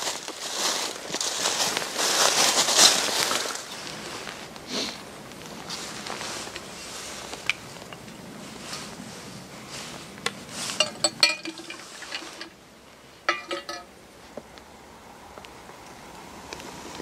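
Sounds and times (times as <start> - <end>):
soft handling rustle: 0.0 - 14.6
metal flask clinking: 10.8 - 12.6, 13.3 - 13.9.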